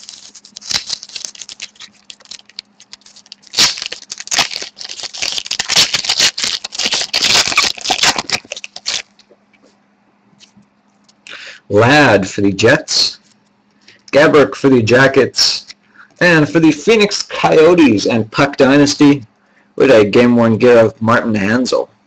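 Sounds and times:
card packaging crinkling: 0.0 - 9.4.

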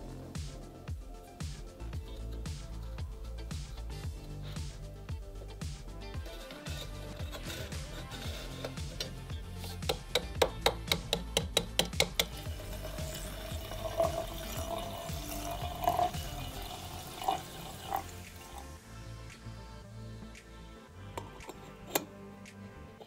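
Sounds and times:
background music: 0.0 - 23.0
liquid pouring: 12.2 - 18.8.

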